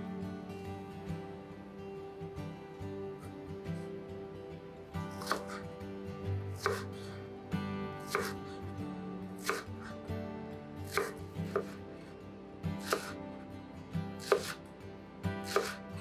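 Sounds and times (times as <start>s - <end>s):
soft background music: 0.0s - 16.0s
knife slicing onion on board: 5.2s - 5.7s, 6.5s - 7.2s, 8.0s - 8.5s, 9.4s - 10.0s, 10.8s - 11.9s, 12.8s - 13.2s, 14.2s - 14.7s, 15.3s - 15.9s.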